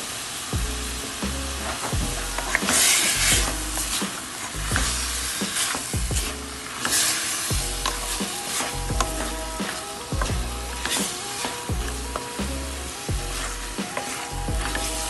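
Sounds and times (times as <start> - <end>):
meat sizzling in hot oil: 0.0 - 8.9.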